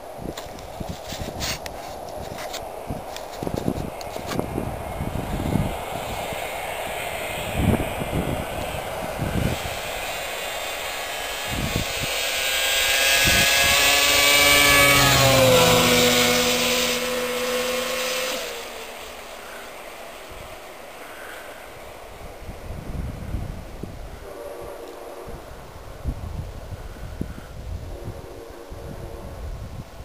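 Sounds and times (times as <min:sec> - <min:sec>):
snowmobile passing by: 0:03.8 - 0:22.0.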